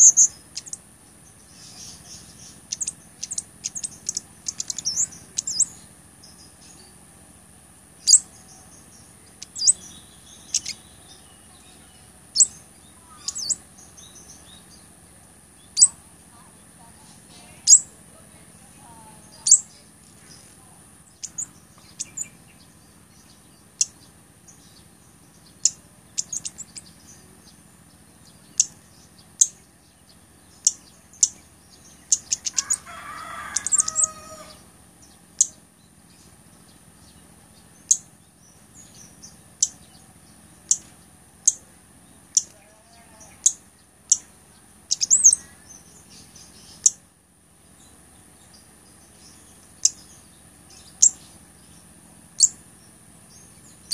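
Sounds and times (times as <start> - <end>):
bird high call notes: 9.4 - 14.8, 32.1 - 34.6.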